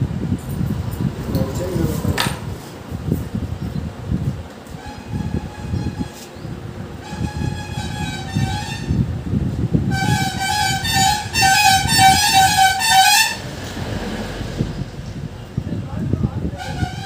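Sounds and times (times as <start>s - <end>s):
vehicle horn with wavering pitch: 4.8s - 6.3s, 7.0s - 9.1s, 9.9s - 13.6s, 16.6s - 17.0s.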